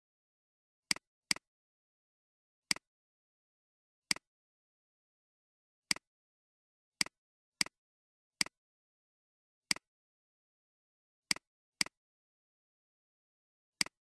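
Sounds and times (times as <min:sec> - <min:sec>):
computer mouse clicks: 0:13.8 - 0:14.0.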